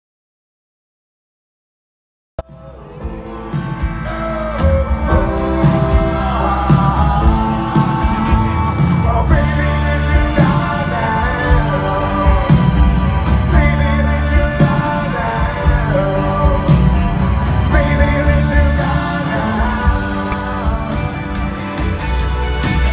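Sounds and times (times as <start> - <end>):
lead singer singing: 2.4 - 22.4
live rock band playing: 2.4 - 22.9.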